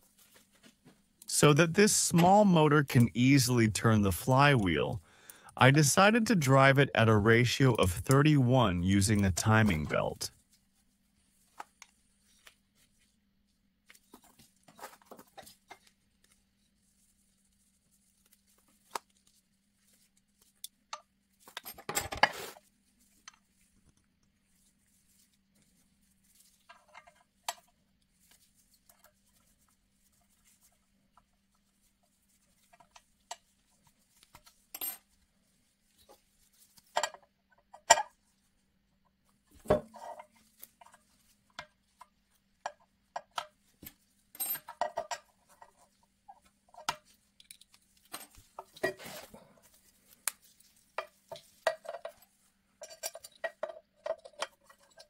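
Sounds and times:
metal parts clinking and knocking: 0:52.8 - 0:55.0.

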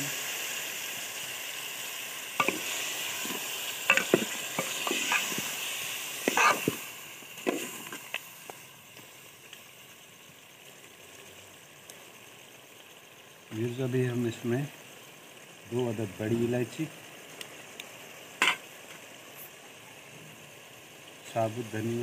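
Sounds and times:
meat sizzling in a pot: 0:00.0 - 0:22.0.

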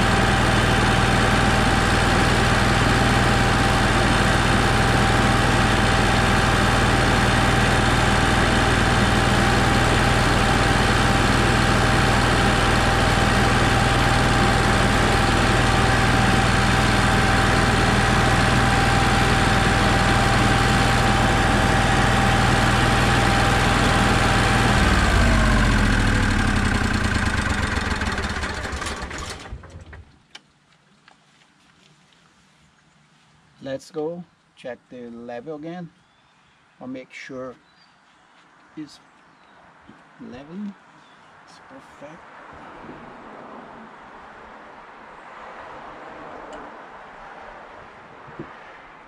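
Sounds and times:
generator running and winding down: 0:00.0 - 0:30.2.

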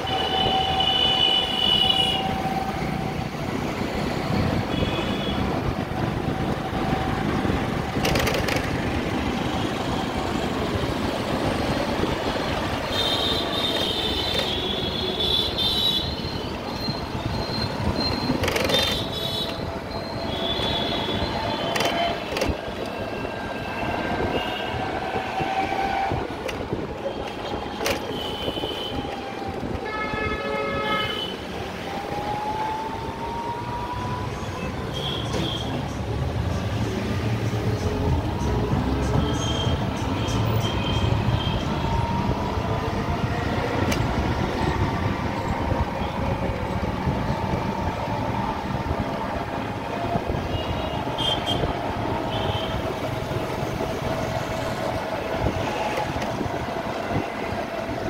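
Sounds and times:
road noise rumble and whine: 0:00.0 - 0:58.0.

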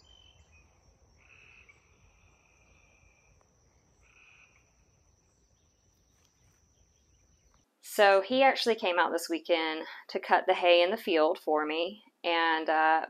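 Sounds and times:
faint trilling animal calls: 0:00.0 - 0:05.0.

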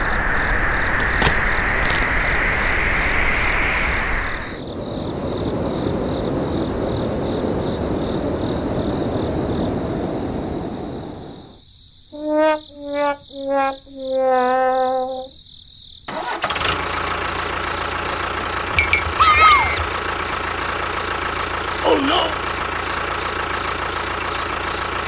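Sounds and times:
sharp clicks: 0:01.0 - 0:02.1.

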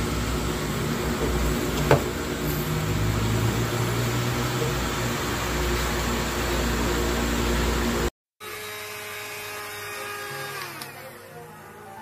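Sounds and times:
handheld vacuum cleaner whirring: 0:08.4 - 0:12.0.

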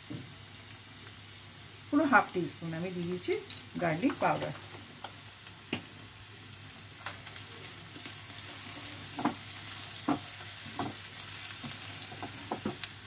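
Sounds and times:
onions sizzling in oil: 0:00.0 - 0:13.0
spatula scraping a pan: 0:08.4 - 0:12.6.

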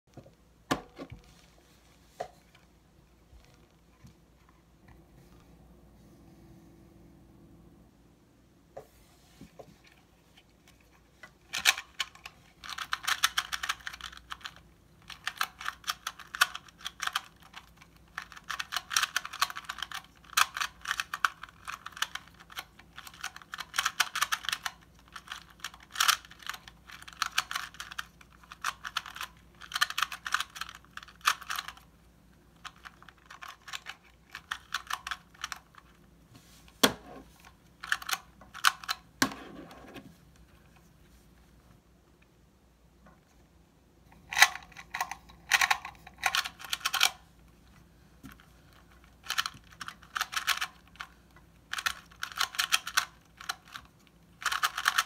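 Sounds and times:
puzzle cube clicking as turned: 0:11.5 - 0:31.9, 0:32.6 - 0:36.0, 0:37.4 - 0:39.0, 0:44.3 - 0:47.2, 0:48.3 - 0:55.0.

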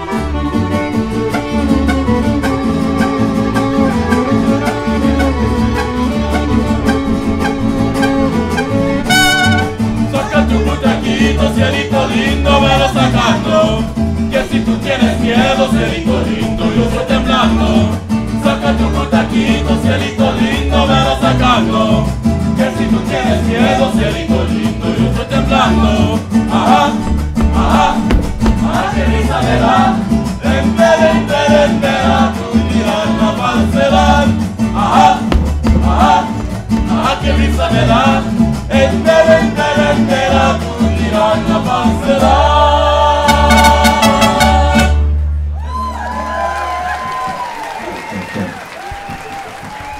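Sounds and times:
violins playing: 0:00.0 - 0:10.1
strummed guitars: 0:00.0 - 0:42.6, 0:43.2 - 0:45.5
steady bass pulse: 0:01.4 - 0:11.8, 0:25.4 - 0:31.1, 0:33.3 - 0:39.1
man singing: 0:09.1 - 0:45.0.

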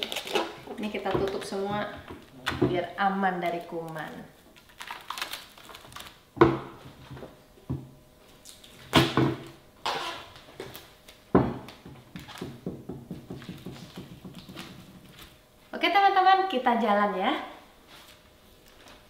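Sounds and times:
food containers knocking: 0:11.4 - 0:15.1.

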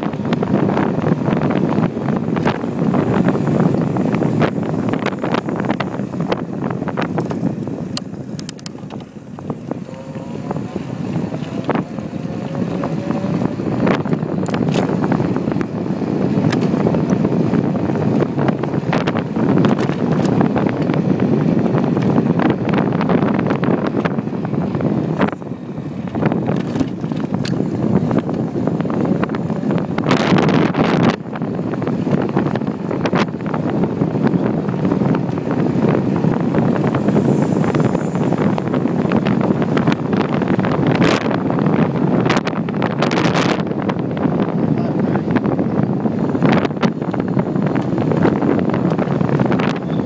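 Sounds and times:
wind buffeting microphone: 0:00.0 - 0:50.0
clicks and rattles: 0:07.2 - 0:09.1.

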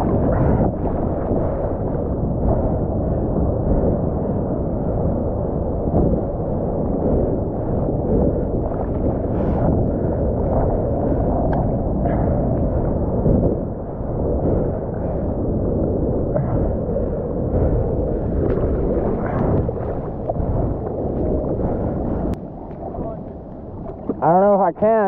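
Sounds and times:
muffled surf water rushing: 0:00.0 - 0:25.0
wind: 0:00.0 - 0:25.0
water splashes: 0:16.3 - 0:25.0.

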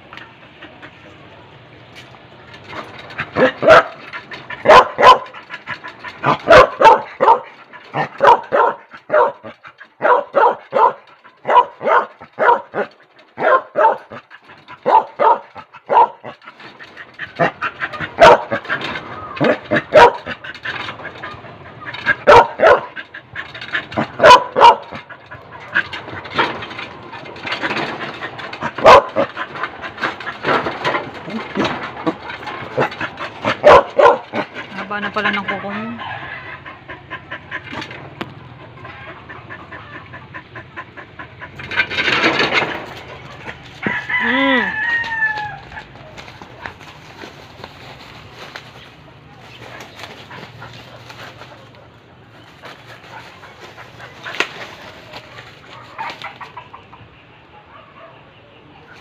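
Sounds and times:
large dog barking: 0:03.2 - 0:16.5, 0:17.3 - 0:23.1, 0:23.7 - 0:26.1, 0:27.8 - 0:37.8, 0:57.5 - 0:58.4.

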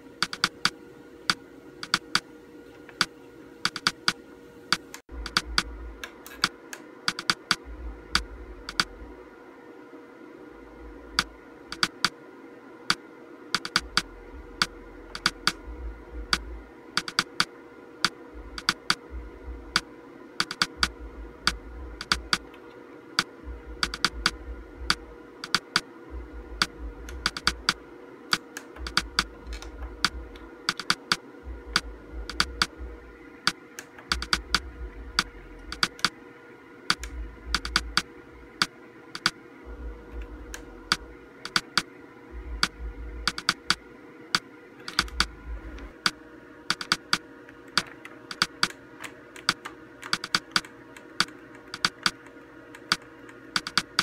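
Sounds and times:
faint steady whine: 0:00.0 - 0:54.0
monitor buttons clicking: 0:00.2 - 0:02.2, 0:02.9 - 0:07.6, 0:08.2 - 0:08.9, 0:11.2 - 0:12.2, 0:13.6 - 0:15.6, 0:16.3 - 0:19.0, 0:20.4 - 0:20.9, 0:21.5 - 0:22.6, 0:23.2 - 0:25.8, 0:26.6 - 0:32.7, 0:33.4 - 0:34.6, 0:35.2 - 0:36.2, 0:36.9 - 0:39.4, 0:40.5 - 0:41.9, 0:42.6 - 0:43.8, 0:44.4 - 0:54.0.

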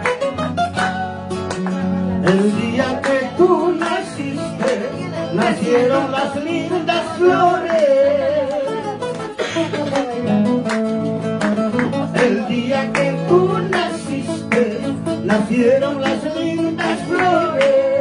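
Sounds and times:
acoustic guitar strumming: 0:00.0 - 0:18.0
person singing: 0:02.2 - 0:09.0, 0:11.8 - 0:18.0.

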